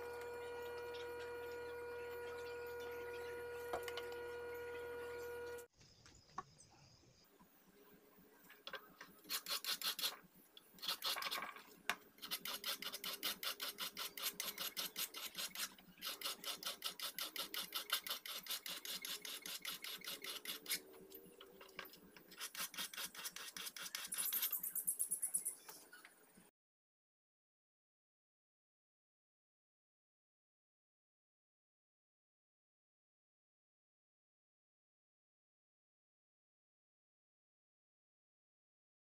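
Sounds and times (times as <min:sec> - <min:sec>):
hand file scraping steel blade: 0:09.2 - 0:10.2, 0:10.8 - 0:11.6, 0:12.2 - 0:21.0, 0:22.3 - 0:24.8.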